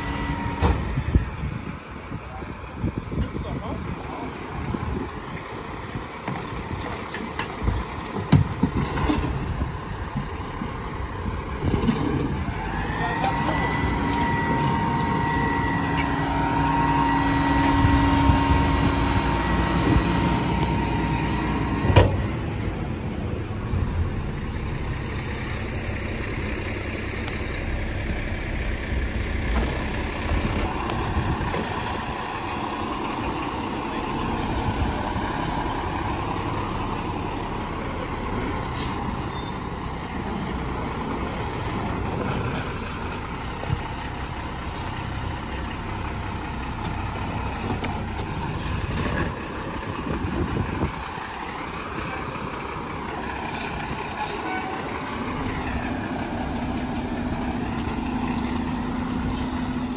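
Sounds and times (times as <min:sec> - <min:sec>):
diesel engine revving: 0:00.0 - 0:59.9
hydraulic pump whining: 0:12.2 - 0:22.9.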